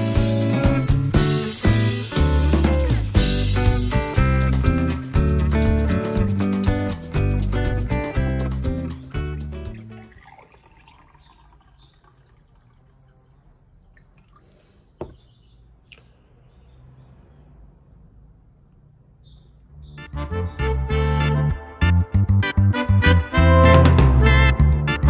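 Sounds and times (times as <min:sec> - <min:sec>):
water poured into a glass: 0:09.7 - 0:14.9
birds chirping faintly: 0:09.8 - 0:20.2
glass knocking on wooden table: 0:15.0 - 0:15.2.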